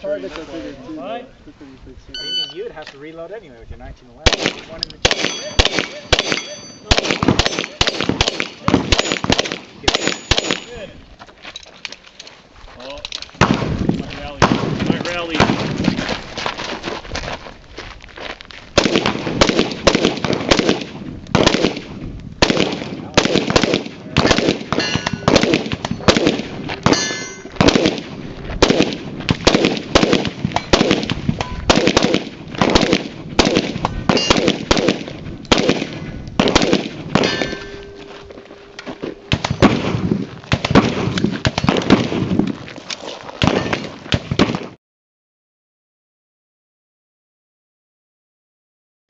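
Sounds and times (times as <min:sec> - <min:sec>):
pistol shots: 0:04.2 - 0:10.8, 0:18.8 - 0:38.0, 0:39.2 - 0:42.4, 0:43.4 - 0:44.7
steel targets ringing: 0:05.1 - 0:07.7, 0:10.0 - 0:10.8, 0:24.8 - 0:26.2, 0:26.8 - 0:27.6, 0:34.1 - 0:34.5, 0:37.2 - 0:39.9.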